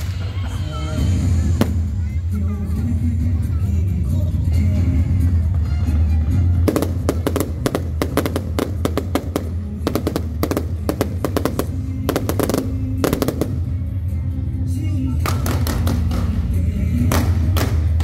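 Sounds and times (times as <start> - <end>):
fireworks bangs and crackles: 0.0 - 2.2, 6.6 - 13.9, 15.2 - 16.4
music: 0.0 - 18.0.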